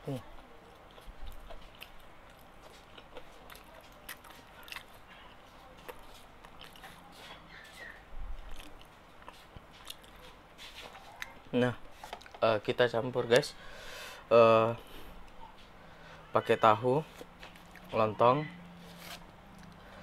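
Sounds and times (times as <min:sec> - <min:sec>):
person chewing: 0:00.6 - 0:12.4, 0:17.0 - 0:18.0, 0:18.8 - 0:20.0.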